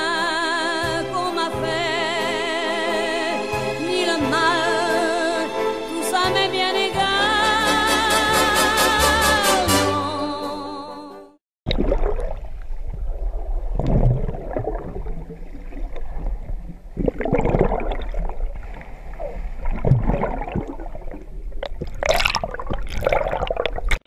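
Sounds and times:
low underwater rumble: 11.7s - 24.0s
underwater water rushing: 11.7s - 24.0s.

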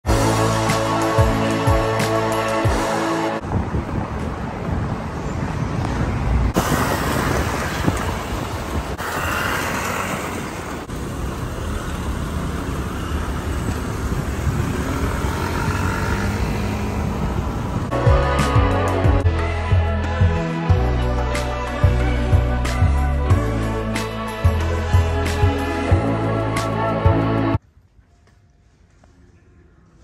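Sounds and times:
road traffic rumble: 0.0s - 19.2s.

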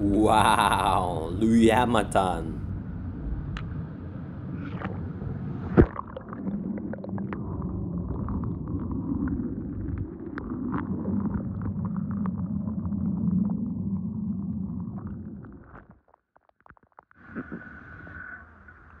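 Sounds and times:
underwater moving water rumble: 0.0s - 15.9s
bubbles popping: 5.8s - 11.8s.

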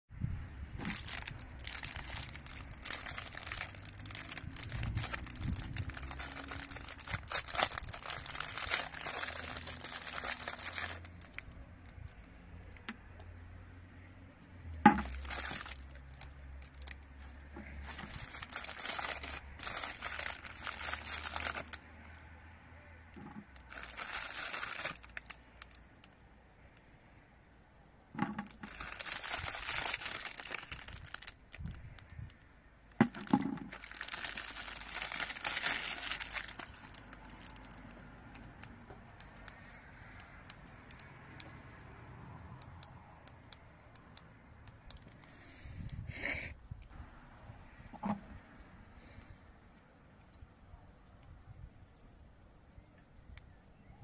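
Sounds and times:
plastic bag crinkling: 0.7s - 12.9s, 14.7s - 22.2s, 23.1s - 26.1s, 28.2s - 39.6s.

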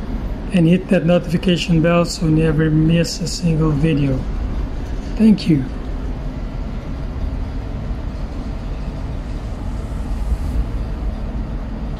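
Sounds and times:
ship engine rumble: 0.0s - 11.9s.

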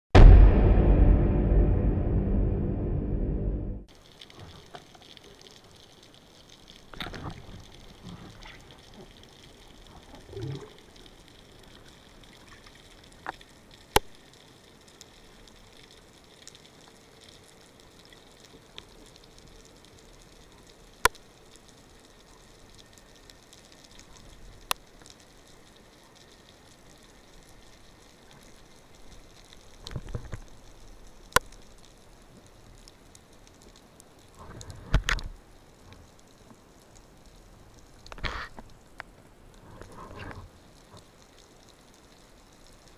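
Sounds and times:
faint underwater hiss: 3.9s - 42.9s.

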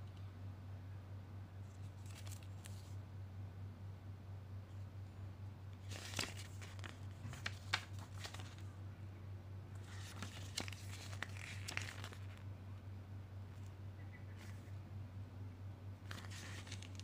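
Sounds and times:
steady low hum: 0.0s - 17.0s
paper pages rustling and crinkling: 1.7s - 3.0s, 5.8s - 8.7s, 9.8s - 12.5s, 16.0s - 17.0s.

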